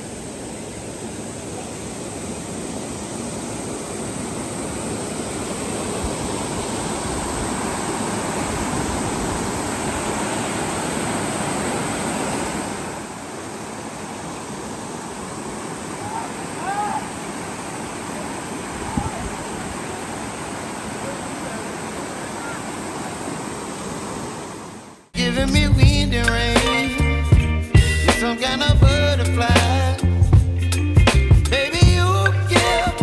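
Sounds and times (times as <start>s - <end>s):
sea surf washing on beach: 0.0s - 25.1s.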